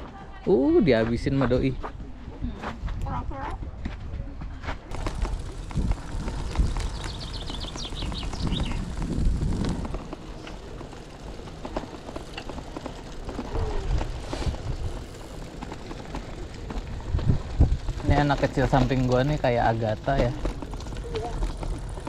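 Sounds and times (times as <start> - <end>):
gravel crunches and ticks: 4.6 - 22.0
bike tyres rumbling on gravel: 4.8 - 22.0
bird trill: 6.5 - 8.9.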